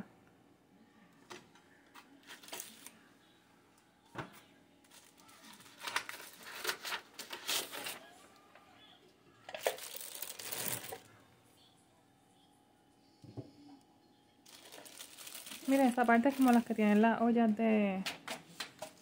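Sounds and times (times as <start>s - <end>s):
packing paper rustling: 2.2s - 3.0s, 4.9s - 8.1s, 9.5s - 11.1s, 14.5s - 17.1s.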